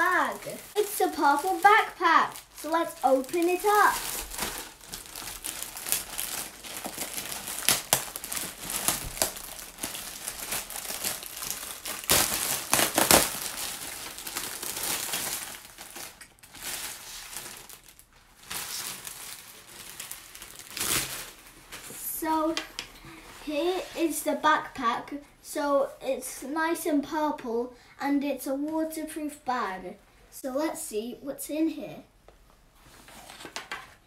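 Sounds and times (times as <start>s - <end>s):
plastic bag crinkling: 0.0s - 22.6s.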